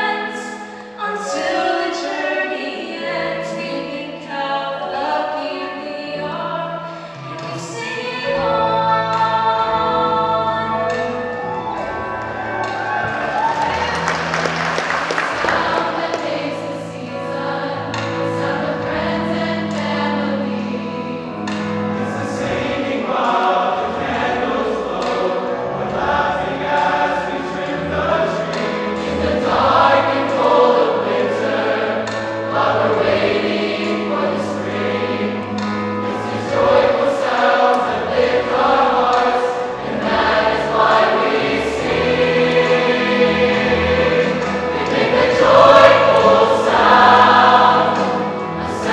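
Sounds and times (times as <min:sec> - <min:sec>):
mixed choir singing: 0:00.0 - 0:48.9.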